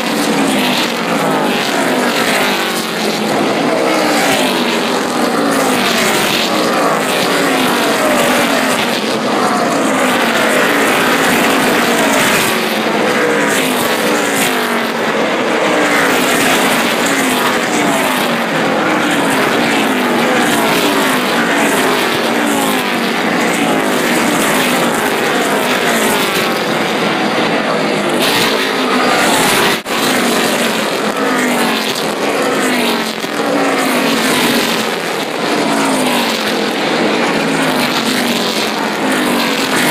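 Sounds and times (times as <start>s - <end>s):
race cars passing by: 0.0s - 39.9s.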